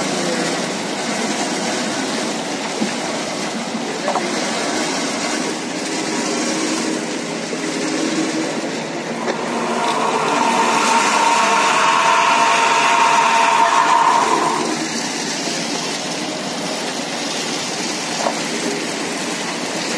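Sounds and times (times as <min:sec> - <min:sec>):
washing machine running: 0:00.0 - 0:19.9
machine whine: 0:08.6 - 0:15.3.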